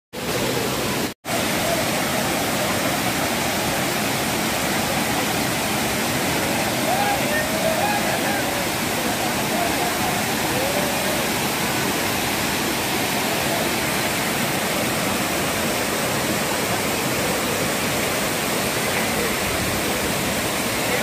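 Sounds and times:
waterfall roaring: 0:00.2 - 0:21.0.

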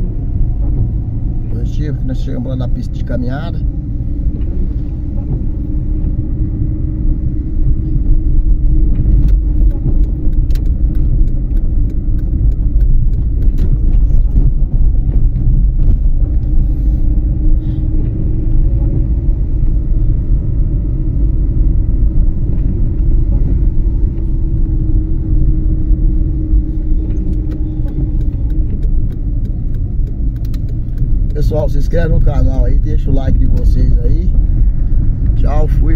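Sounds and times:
car engine and tyres rumbling: 0:00.0 - 0:35.9
light ticks: 0:08.9 - 0:14.5, 0:27.0 - 0:32.3.

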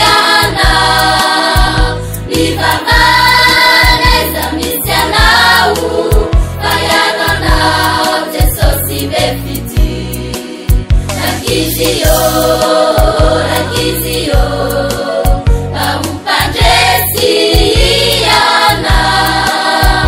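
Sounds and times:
bass: 0:00.0 - 0:20.0
choir singing gospel song: 0:00.0 - 0:20.0
steady drum beat: 0:00.1 - 0:09.0, 0:09.6 - 0:14.7, 0:15.3 - 0:20.0.

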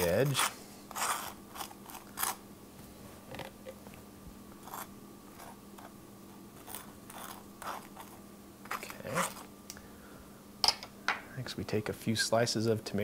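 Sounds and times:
faint steady hum: 0:00.0 - 0:13.0
knife scraping toast: 0:00.3 - 0:02.4, 0:06.6 - 0:09.5.

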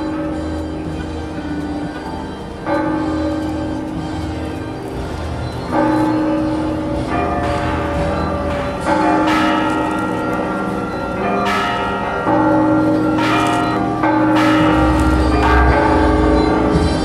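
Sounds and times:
church bells ringing: 0:00.0 - 0:17.0.

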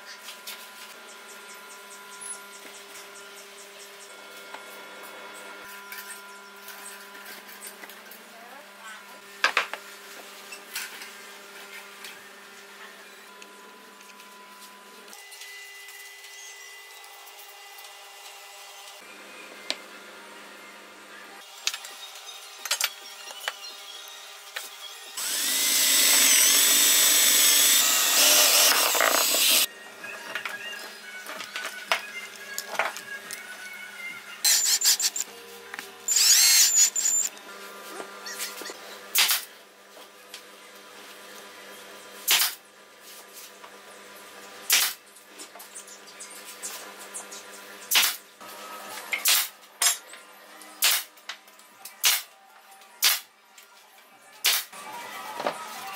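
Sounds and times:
nail gun firing into wood: 0:39.2 - 0:39.5, 0:44.7 - 0:45.0.

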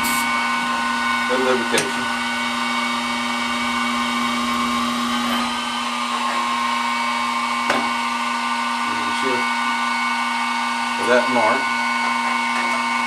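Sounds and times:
milling machine spindle humming: 0:00.0 - 0:13.0.

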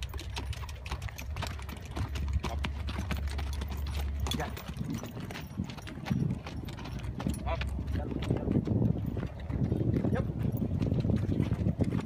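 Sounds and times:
horse hoofbeats on dirt: 0:00.0 - 0:12.0.

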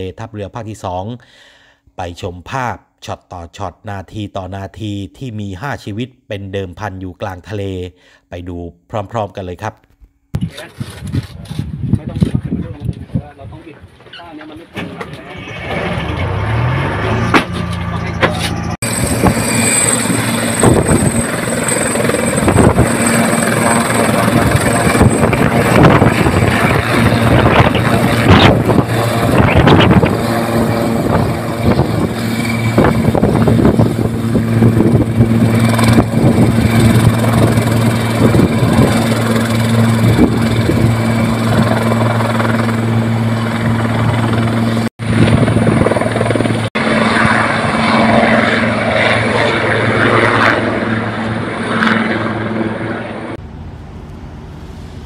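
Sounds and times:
helicopter rotor hum: 0:15.0 - 0:55.0.

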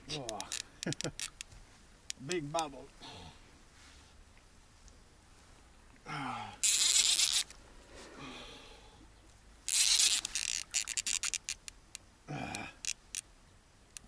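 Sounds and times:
fishing reel clicks: 0:00.1 - 0:01.5, 0:06.6 - 0:07.5, 0:09.7 - 0:12.0, 0:12.8 - 0:13.2
man grunting: 0:06.1 - 0:06.6, 0:12.3 - 0:12.8
fishing reel drag rushing: 0:06.6 - 0:07.5, 0:09.7 - 0:11.7.

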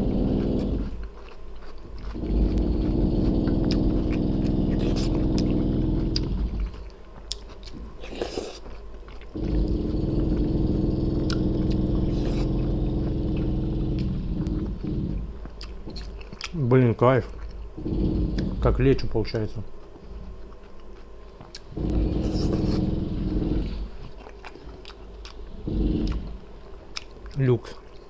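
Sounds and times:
power tool humming: 0:00.0 - 0:00.9, 0:02.2 - 0:06.7, 0:09.4 - 0:15.4, 0:17.8 - 0:18.9, 0:21.8 - 0:23.9, 0:25.6 - 0:26.5
chewing and biting food: 0:00.0 - 0:28.0.

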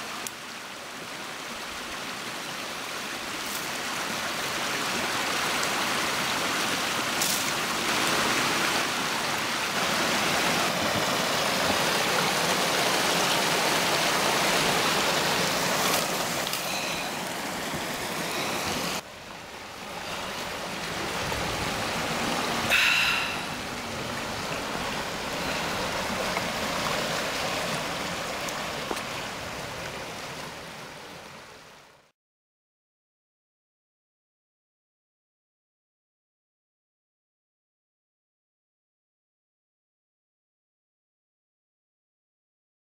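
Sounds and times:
stream water flowing: 0:00.0 - 0:32.1
water rushing through a gap: 0:01.1 - 0:31.7.

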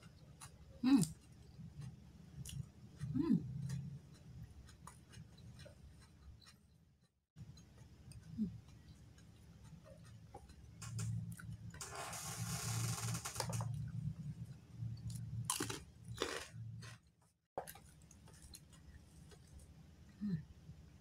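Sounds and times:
person chewing food: 0:00.0 - 0:11.8, 0:13.6 - 0:17.0, 0:17.6 - 0:19.8.

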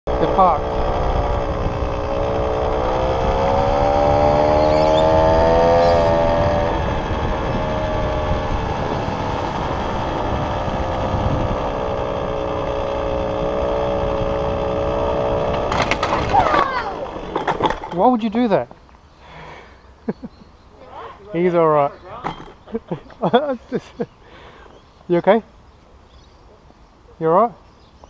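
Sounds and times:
vehicle motor whining: 0:00.1 - 0:18.0
wind and road noise: 0:00.1 - 0:28.0.

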